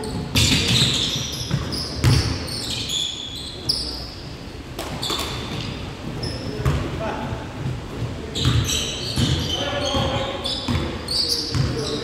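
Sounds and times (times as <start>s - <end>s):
basketball bouncing: 0.0s - 2.4s, 8.4s - 11.8s
sneakers squeaking on floor: 0.0s - 4.2s, 4.8s - 6.9s, 8.2s - 12.0s.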